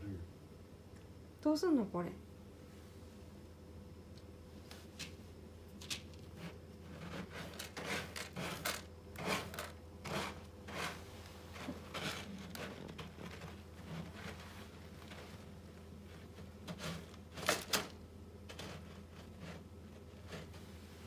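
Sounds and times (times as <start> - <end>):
cat scratching in litter: 6.2 - 21.0.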